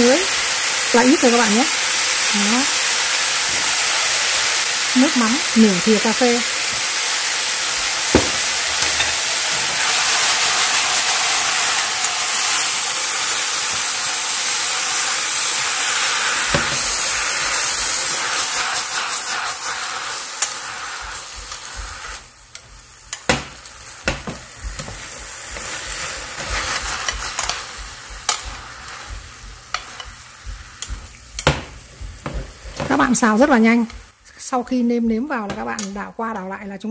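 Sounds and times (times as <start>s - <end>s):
greens sizzling in a pan: 0.0s - 36.4s
utensil clicking against pan: 24.1s - 31.5s.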